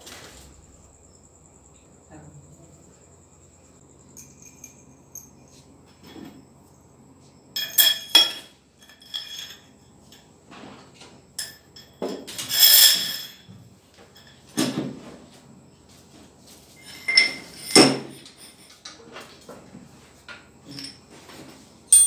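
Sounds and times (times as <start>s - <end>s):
steel parts clanking: 7.6s - 10.3s, 11.4s - 13.4s, 16.8s - 18.7s.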